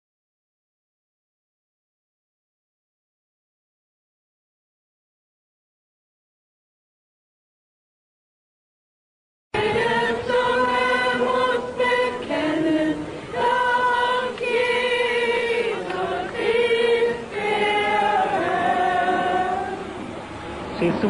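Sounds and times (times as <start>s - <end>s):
group singing worship song: 9.6s - 20.1s.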